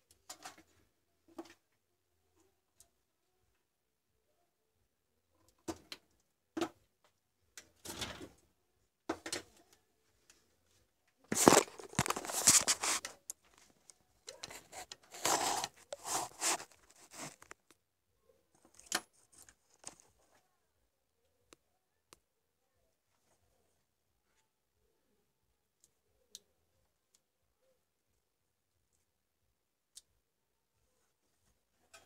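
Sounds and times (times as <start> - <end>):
rustling and rattling: 11.3 - 17.7.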